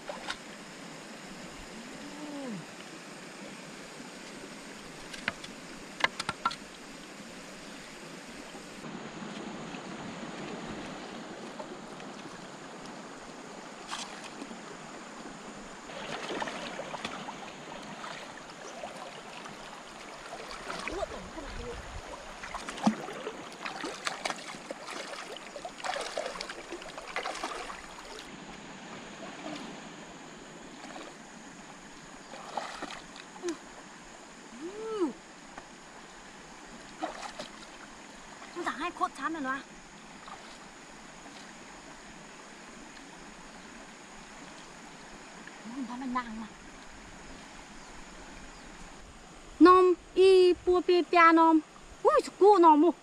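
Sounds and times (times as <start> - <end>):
stream running over stones: 0.0 - 53.0
legs sloshing through water: 15.8 - 28.3, 29.1 - 29.9, 30.6 - 31.2, 32.0 - 33.6, 36.8 - 38.8, 40.1 - 41.6
splashing water: 15.9 - 28.3, 32.3 - 33.6, 36.9 - 38.9.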